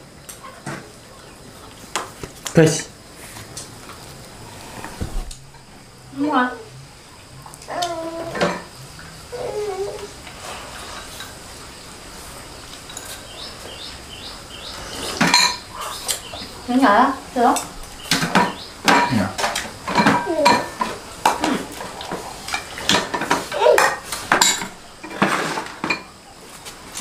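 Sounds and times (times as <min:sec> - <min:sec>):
chopsticks and bowls clinking: 0:17.5 - 0:26.1.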